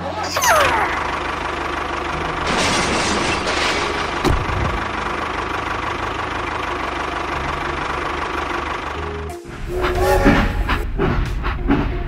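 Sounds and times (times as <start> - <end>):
small engine idling: 0.0 - 2.6, 3.4 - 9.5.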